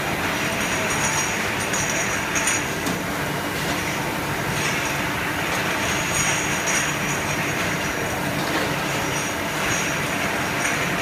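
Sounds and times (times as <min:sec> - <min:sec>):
conveyor machinery din: 0:00.0 - 0:11.0.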